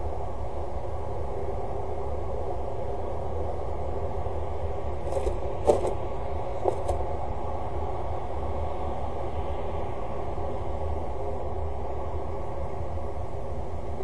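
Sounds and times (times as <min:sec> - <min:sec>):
low outdoor rumble: 0:00.0 - 0:14.0
bird stepping knocks: 0:05.1 - 0:06.0, 0:06.6 - 0:07.0.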